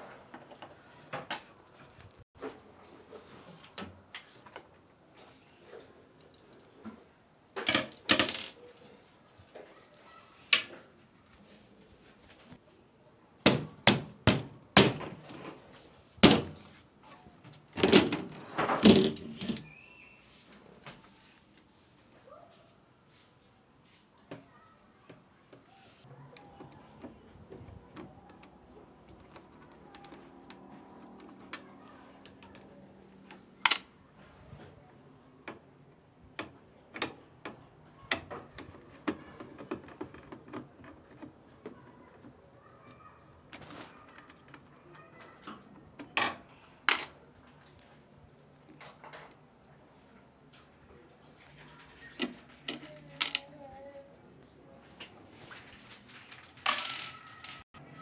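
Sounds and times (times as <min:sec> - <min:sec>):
plastic panel parts being handled: 0:13.5 - 0:19.8, 0:36.4 - 0:42.4, 0:51.3 - 0:53.6, 0:55.0 - 0:57.6.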